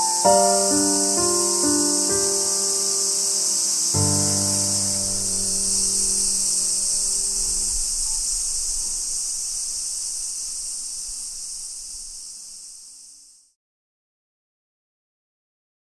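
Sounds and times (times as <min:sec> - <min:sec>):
low sustained tones: 0:00.0 - 0:09.0
insect chorus buzzing: 0:00.0 - 0:13.6.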